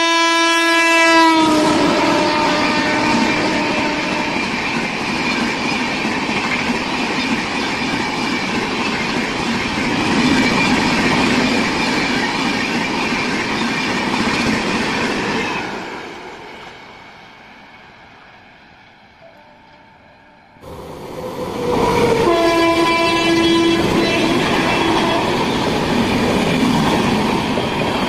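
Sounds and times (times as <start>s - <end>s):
train wheels rushing on rail: 1.3s - 19.3s, 20.5s - 28.0s.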